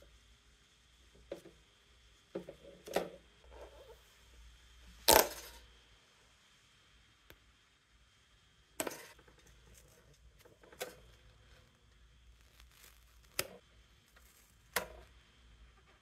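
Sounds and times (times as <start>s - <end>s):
tape ripping off plastic: 5.0s - 5.6s, 12.3s - 15.1s.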